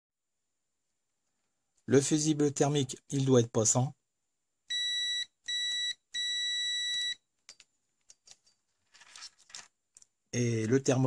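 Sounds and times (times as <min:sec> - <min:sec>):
multimeter buzzer beeping: 0:04.7 - 0:07.2.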